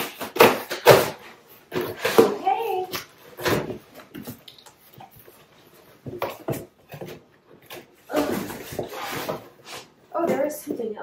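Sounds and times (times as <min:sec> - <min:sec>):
rummaging in cardboard box: 0:08.0 - 0:10.5.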